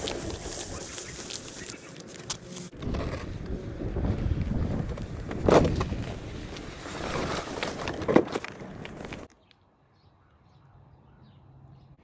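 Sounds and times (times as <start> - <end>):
snow pusher blade scraping pavement: 0.0 - 9.3.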